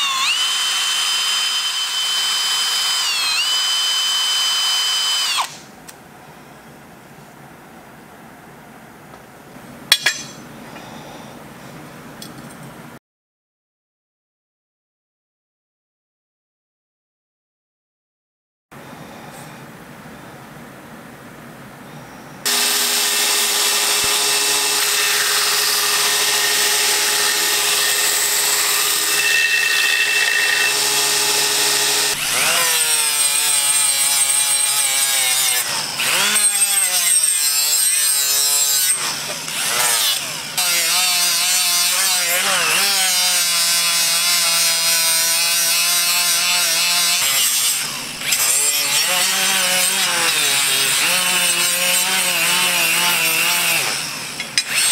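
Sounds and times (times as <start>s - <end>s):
grinder whining on steel blade: 0.0s - 5.6s, 22.5s - 54.9s.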